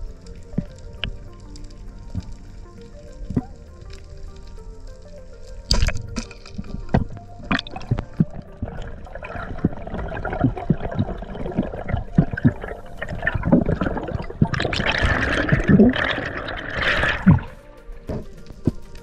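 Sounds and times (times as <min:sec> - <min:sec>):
underwater sloshing and gurgling: 0:00.0 - 0:19.0
rush of bubbles: 0:05.7 - 0:17.6.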